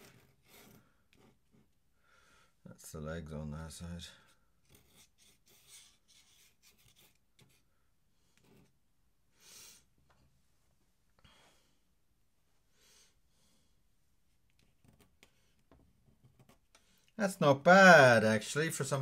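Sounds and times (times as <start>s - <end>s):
pen nib scratching on paper: 0.0s - 1.7s, 4.6s - 7.7s.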